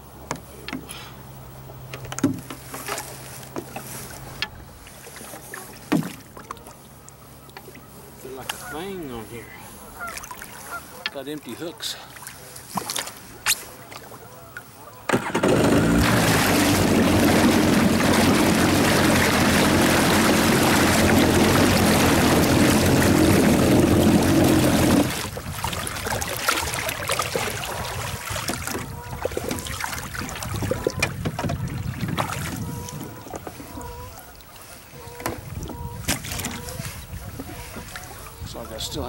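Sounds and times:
water lapping against hull: 2.4s - 39.0s
jet ski engine running: 14.2s - 39.0s.

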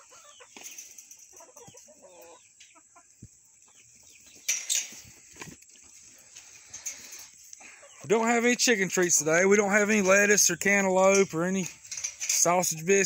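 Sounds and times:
hens clucking softly: 0.0s - 8.1s.

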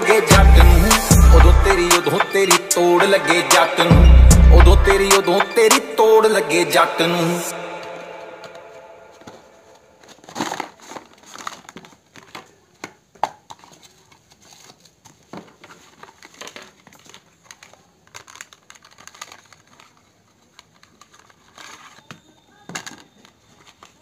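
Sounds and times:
plastic mailer crinkling: 8.5s - 24.0s.

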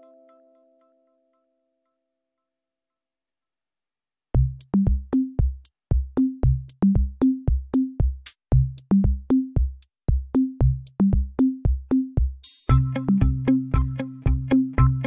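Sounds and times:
electronic music with drum machine: 4.4s - 15.0s.

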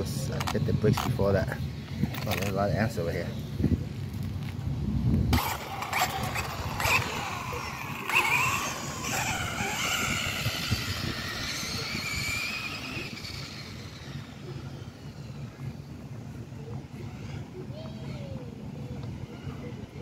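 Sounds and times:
rc car electric motor whining: 5.3s - 16.2s.

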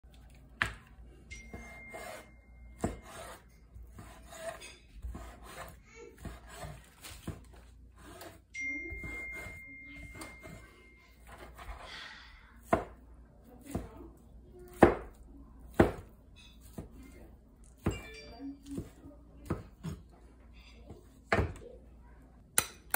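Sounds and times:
knife slicing ham: 1.5s - 8.4s.

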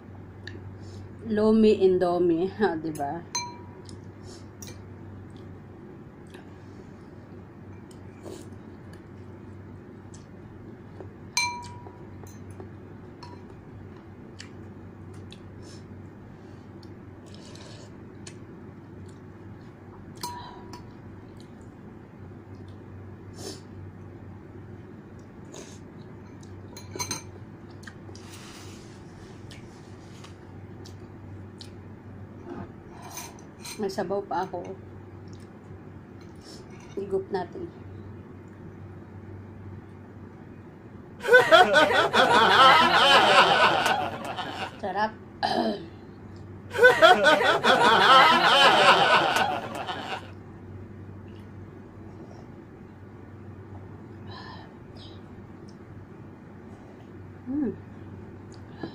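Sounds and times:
steady low hum: 0.0s - 58.9s
woman speaking: 1.2s - 3.3s, 37.0s - 37.8s, 44.8s - 45.2s
cutlery clinking on bowl: 11.4s - 12.5s.

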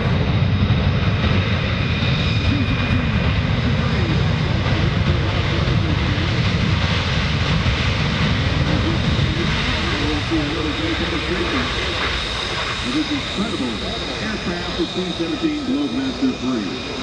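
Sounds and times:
jet engines rumbling with whine: 0.0s - 17.0s.

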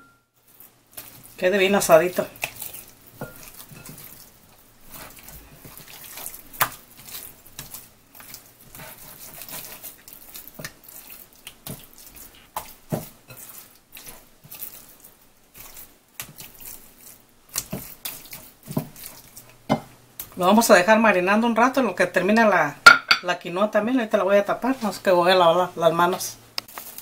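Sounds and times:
hands squelching raw chicken: 0.5s - 19.6s.

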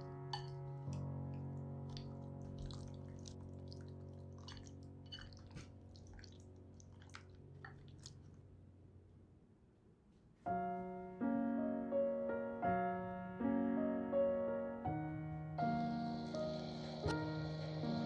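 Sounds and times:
piano notes: 0.0s - 6.8s, 10.4s - 18.0s
wet squelches of stirring: 0.0s - 8.5s
gentle background music: 0.0s - 9.1s, 10.5s - 18.0s.

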